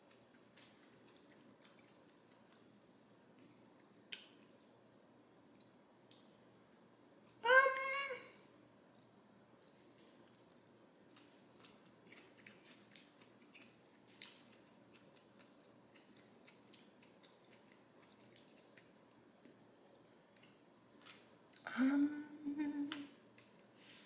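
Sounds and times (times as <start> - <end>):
quiet chewing: 0.0 - 4.7, 5.5 - 6.3, 9.6 - 21.7
person humming mmm: 21.6 - 23.2.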